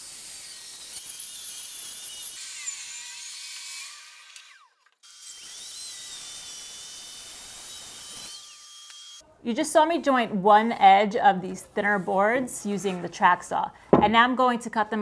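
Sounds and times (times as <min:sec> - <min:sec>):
table saw whine: 0:00.0 - 0:09.2
track saw cutting: 0:00.0 - 0:09.2.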